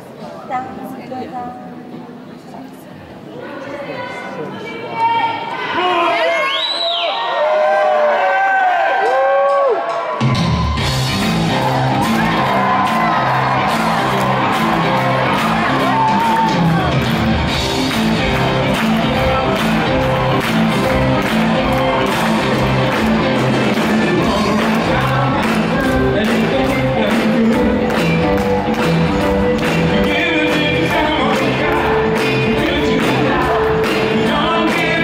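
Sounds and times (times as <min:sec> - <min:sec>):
live band playing pop-soul: 0:10.2 - 0:35.0
person singing: 0:18.0 - 0:35.0.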